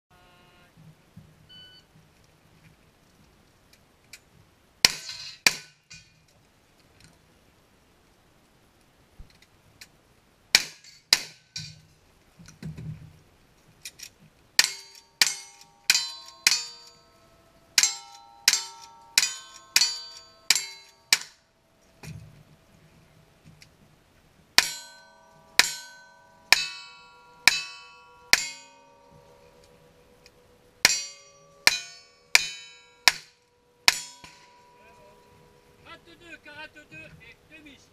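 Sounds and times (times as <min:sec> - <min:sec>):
steel target clanging: 0:04.8 - 0:06.2, 0:14.6 - 0:22.3, 0:24.6 - 0:36.1
rifle and revolver shots: 0:10.5 - 0:11.4.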